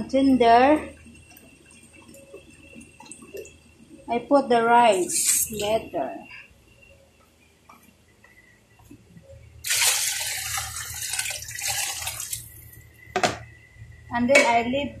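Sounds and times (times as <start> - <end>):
water splashing into a pot: 9.6 - 12.8.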